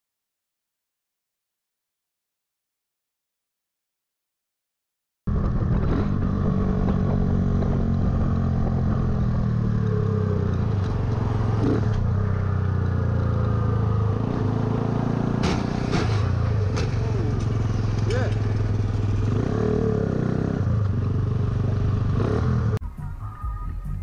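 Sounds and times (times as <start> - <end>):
motorcycle engine running: 5.3 - 22.8.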